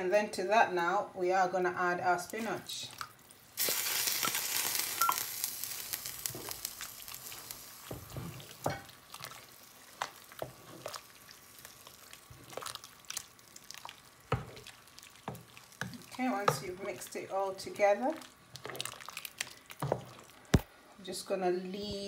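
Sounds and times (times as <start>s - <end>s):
broth hissing in a pot: 3.5s - 17.2s.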